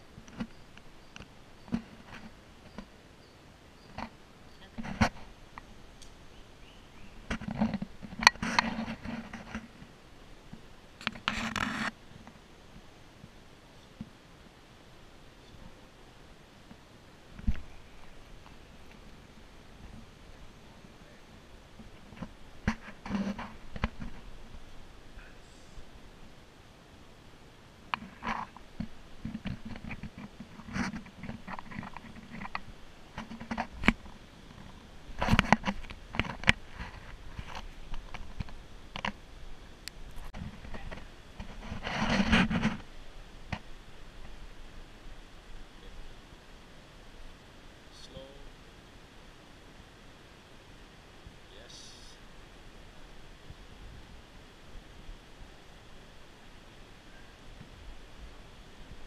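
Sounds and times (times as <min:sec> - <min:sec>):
camera handling scratching: 0:11.0 - 0:11.9.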